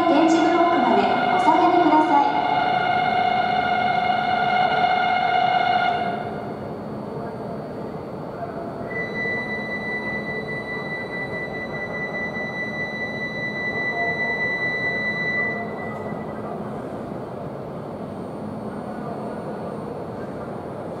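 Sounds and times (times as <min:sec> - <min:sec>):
train rumble and hum: 0:00.0 - 0:21.0
high electronic tone: 0:08.9 - 0:16.3.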